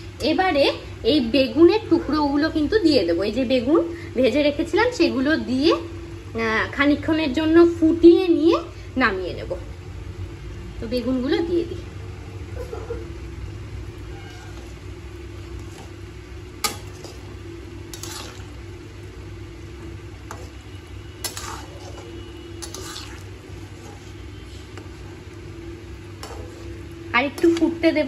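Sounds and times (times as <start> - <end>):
steady low hum: 0.0 - 28.0
spatula stirring curry in pan: 13.6 - 27.9
spatula scraping metal pan: 14.0 - 25.3, 25.9 - 27.7.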